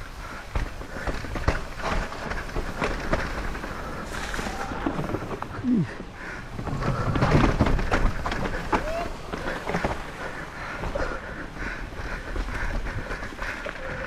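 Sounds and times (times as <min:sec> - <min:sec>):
bike knocks and rattles: 0:00.0 - 0:11.3
tyre noise on dirt trail: 0:00.0 - 0:14.0.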